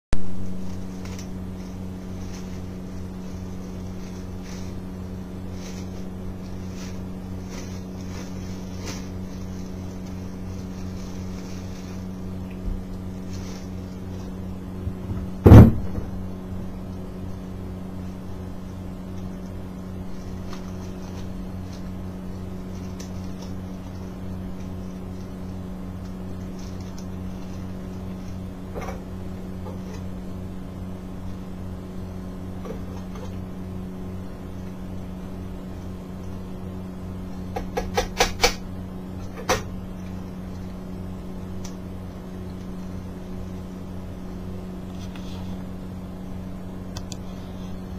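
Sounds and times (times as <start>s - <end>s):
steady low hum: 0.1s - 47.9s
plastic bag handled: 0.4s - 16.2s, 20.1s - 25.5s
cloth rustling: 0.8s - 14.4s
sharp knock: 15.4s - 16.2s.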